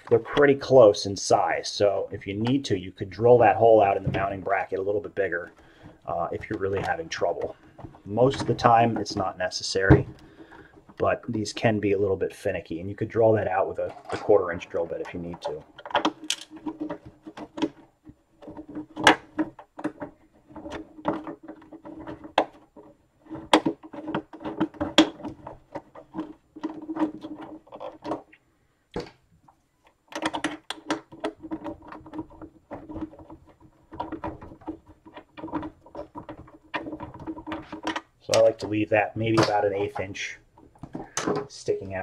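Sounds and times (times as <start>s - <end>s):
screw scraping into plastic: 3.2s - 9.4s, 13.4s - 28.4s, 29.8s - 41.5s.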